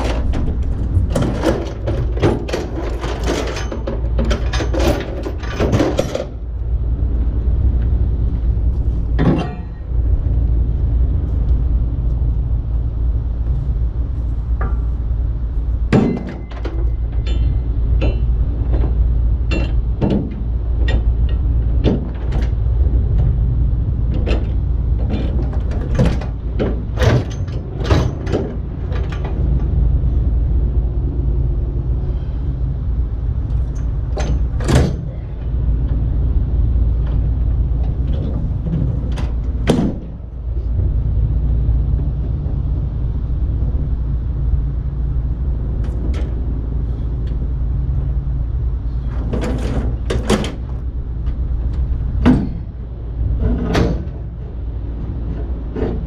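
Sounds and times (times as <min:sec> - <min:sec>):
metal clanks and knocks: 0:00.0 - 0:06.5, 0:09.1 - 0:10.0, 0:15.8 - 0:23.4, 0:24.1 - 0:30.0, 0:33.5 - 0:36.1, 0:36.7 - 0:41.0, 0:45.7 - 0:56.0
steady low rumble: 0:00.0 - 0:56.0.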